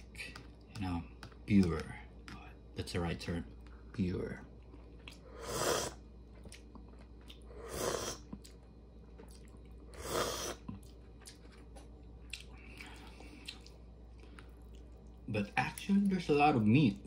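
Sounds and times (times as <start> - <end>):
soft chewing with small clicks: 3.5 - 5.3, 6.0 - 10.0, 10.6 - 16.2.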